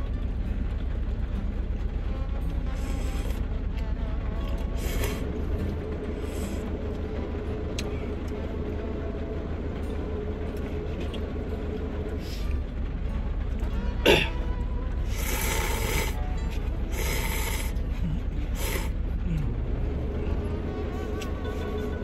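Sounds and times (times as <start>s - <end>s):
vehicle engine idling: 0.0s - 22.0s
noodle slurp: 15.1s - 16.2s, 16.9s - 17.8s, 18.6s - 18.9s.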